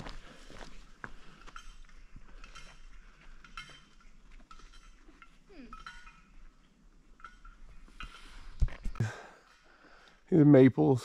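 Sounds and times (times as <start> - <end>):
footsteps on forest trail: 0.0 - 4.6.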